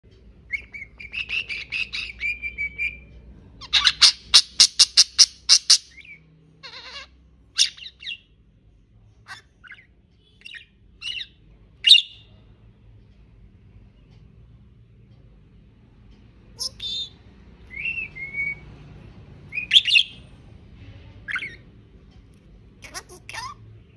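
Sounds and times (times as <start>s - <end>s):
budgerigar chirping and warbling: 0.5s - 8.3s, 9.3s - 12.3s, 16.6s - 18.6s, 19.5s - 20.2s, 21.3s - 21.6s, 22.8s - 23.6s.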